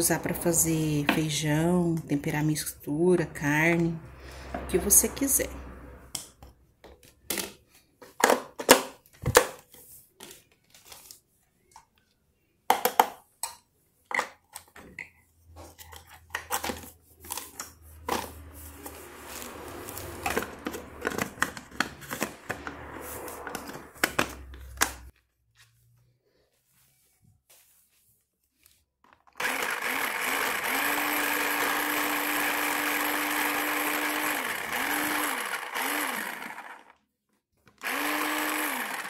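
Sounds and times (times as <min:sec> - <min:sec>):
spatula scraping plastic bowl: 0:15.5 - 0:25.1.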